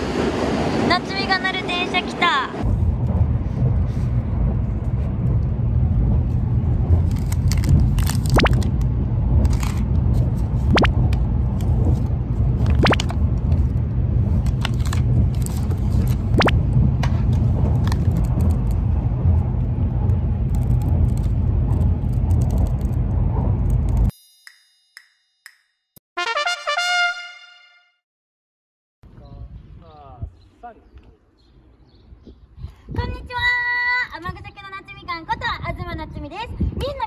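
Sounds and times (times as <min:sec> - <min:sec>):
train cabin low rumble: 0:00.0 - 0:24.1
plastic packaging crackling: 0:07.0 - 0:08.8.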